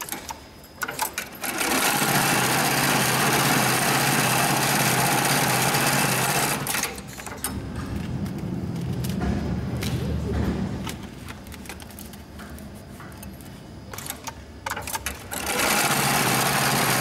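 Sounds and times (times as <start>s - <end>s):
sewing machine stitching: 1.4s - 7.0s, 14.8s - 17.0s.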